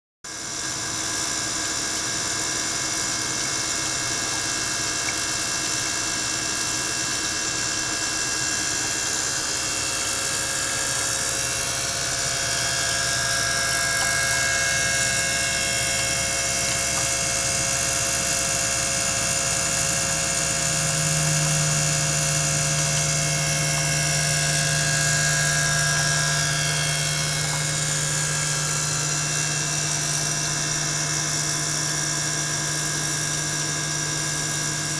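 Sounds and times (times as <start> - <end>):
electric pump humming and whining: 0.3 - 34.9
low hum: 8.7 - 30.6.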